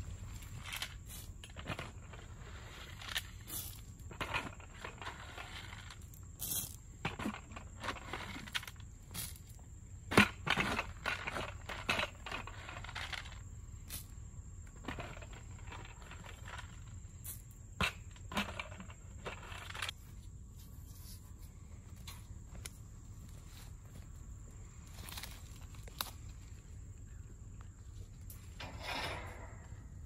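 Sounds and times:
corn crunching on sandy ground: 0:00.0 - 0:14.1, 0:22.0 - 0:26.7.

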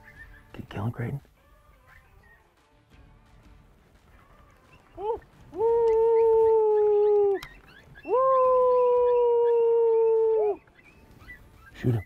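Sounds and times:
howl-like predator call: 0:04.2 - 0:10.7.

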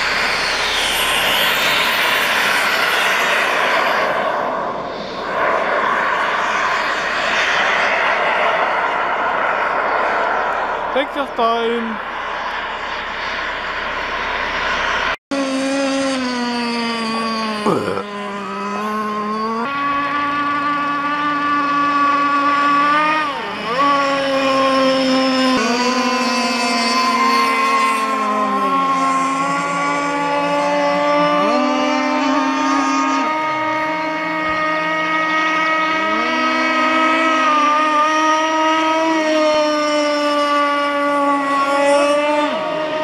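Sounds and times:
model powerboat engine at high revs: 0:15.3 - 0:43.0.

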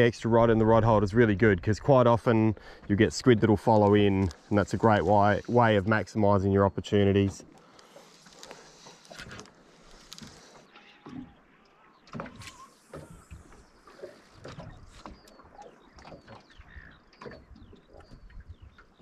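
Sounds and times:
waves lapping against boat hull: 0:00.0 - 0:19.0
knocks and splashes: 0:12.0 - 0:18.9.

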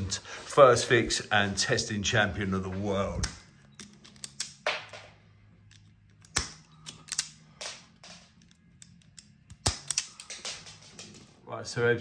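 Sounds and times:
wire strippers clicking: 0:03.0 - 0:11.4.

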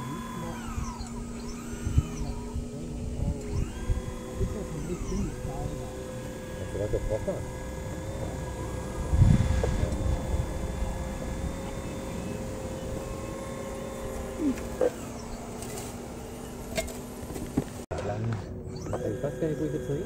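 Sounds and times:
model excavator motors whining: 0:00.0 - 0:20.0
low rumble: 0:07.8 - 0:13.5.

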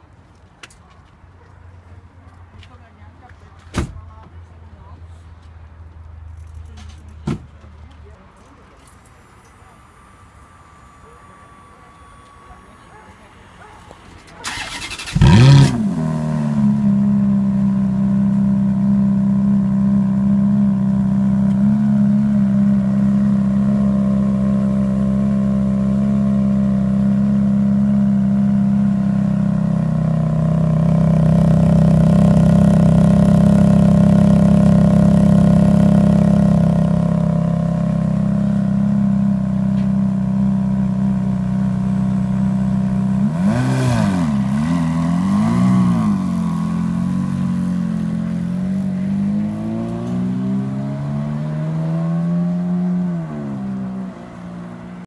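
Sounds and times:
engine throttle blips: 0:09.0 - 0:54.4
car engine idling: 0:09.1 - 0:51.0.

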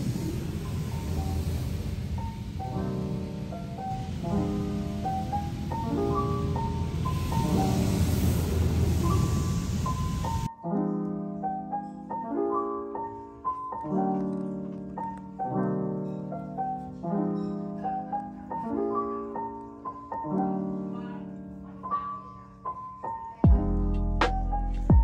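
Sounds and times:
brief hiss: 0:00.0 - 0:10.5
solo piano music: 0:00.0 - 0:25.0.

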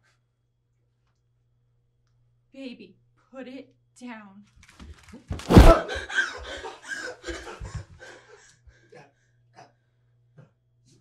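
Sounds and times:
loud gunshot: 0:05.5 - 0:05.9.

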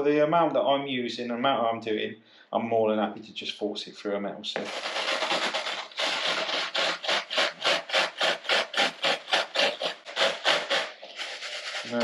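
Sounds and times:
breadcrumbs rasping through sieve: 0:04.6 - 0:12.0.

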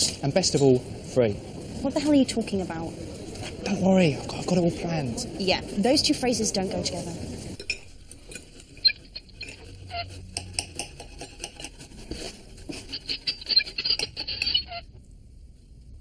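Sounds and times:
knife and fork scraping plate: 0:07.6 - 0:14.8.

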